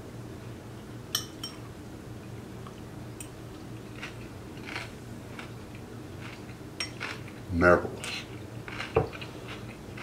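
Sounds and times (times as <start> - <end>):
fork clinking against bowl: 1.1 - 1.6
person chewing crunchy food: 3.5 - 10.0.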